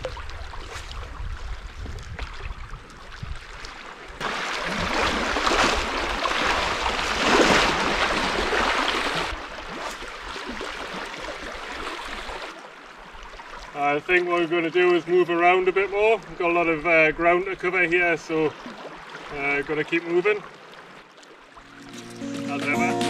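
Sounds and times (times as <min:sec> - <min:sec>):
sea waves washing over rocks: 0:04.2 - 0:09.6.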